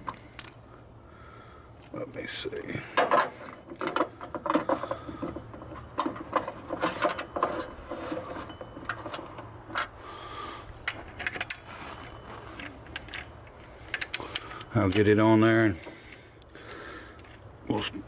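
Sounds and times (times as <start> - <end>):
metal parts clicking and knocking: 1.8 - 9.9, 10.8 - 15.3.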